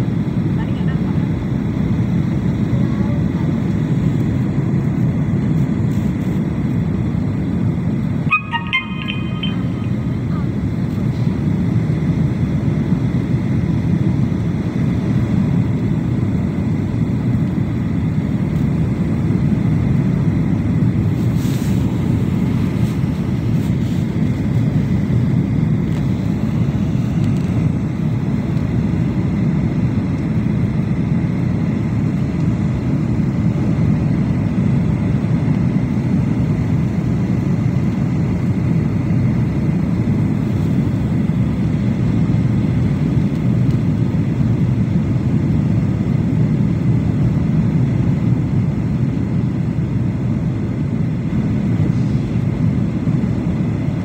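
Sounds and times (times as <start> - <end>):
jet engine cabin rumble: 0.0 - 8.4, 9.8 - 54.0
faint high whine: 8.2 - 11.2.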